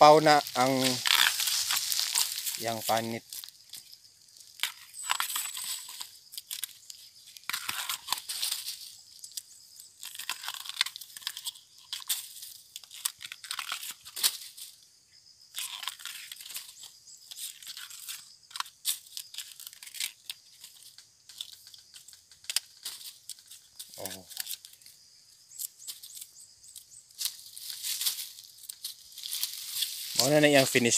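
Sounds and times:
sheaths snapping: 0.2 - 5.6
knife peeling bamboo shoot: 0.5 - 2.7, 3.3 - 14.6, 15.5 - 24.8.

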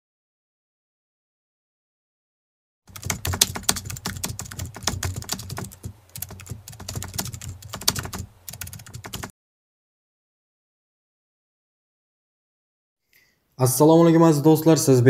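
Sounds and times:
keyboard typing clicks: 2.9 - 9.3.

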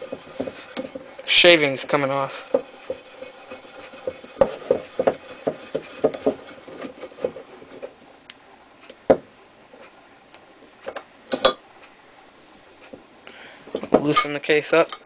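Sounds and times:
hand-cranked case trimmer scraping: 0.0 - 7.9.

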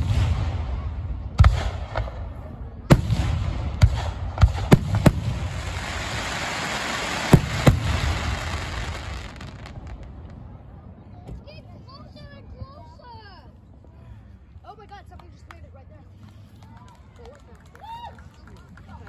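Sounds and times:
crackling firework hiss: 3.2 - 10.4
firework shells bursting: 3.8 - 9.8.

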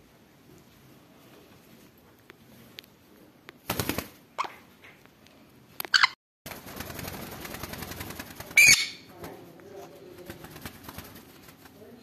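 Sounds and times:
parrot screeching: 5.9 - 6.2, 8.6 - 9.1
rapid rattling burst: 6.5 - 8.7.

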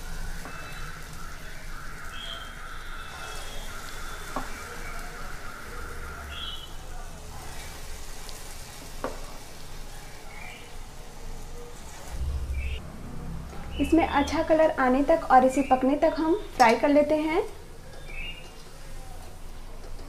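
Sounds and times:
food deep-frying in oil: 0.0 - 12.8.

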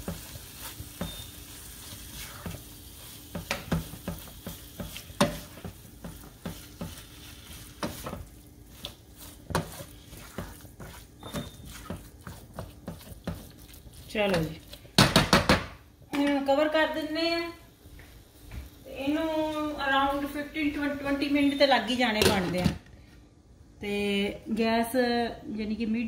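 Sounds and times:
spatula scraping a pan: 0.0 - 15.0
low sizzle: 0.0 - 22.5
spatula knocking on pan: 3.3 - 7.0, 9.4 - 16.3.

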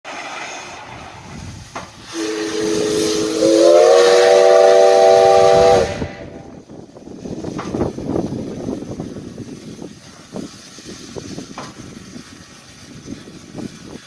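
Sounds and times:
steam hiss: 0.1 - 14.0
steam locomotive whistle chord: 2.1 - 6.5.

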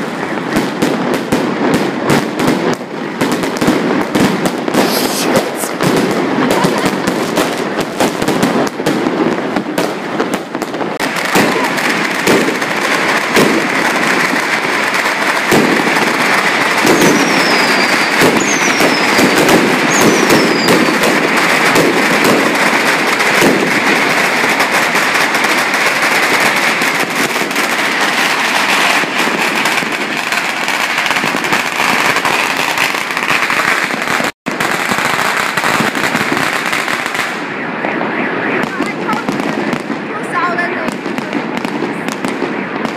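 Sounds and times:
firecrackers crackling and banging: 0.0 - 42.9
falling firework whistles: 16.2 - 22.9.

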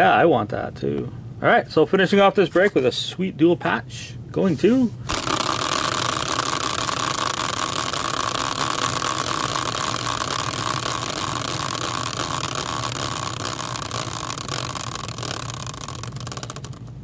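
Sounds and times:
spinning wheel whirring and ticking: 5.1 - 17.0.

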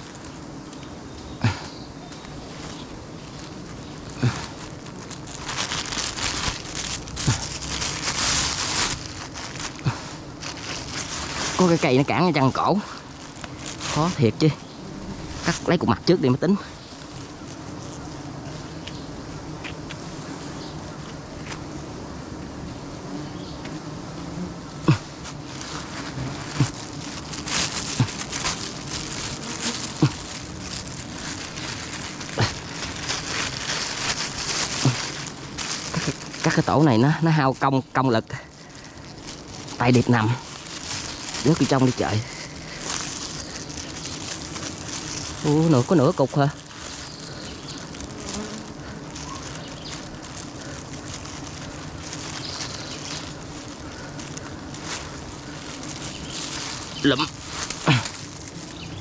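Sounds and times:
honeybee swarm humming: 0.0 - 59.0
comb rustling: 2.6 - 19.0, 25.1 - 37.7, 38.5 - 59.0
single bee buzzing past: 12.8 - 36.4, 46.6 - 59.0.

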